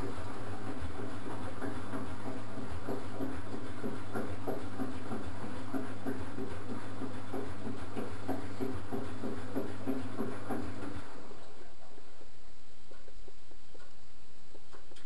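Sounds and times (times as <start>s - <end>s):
water sloshing in drum: 0.0s - 11.4s
washing machine motor hum: 0.0s - 15.0s.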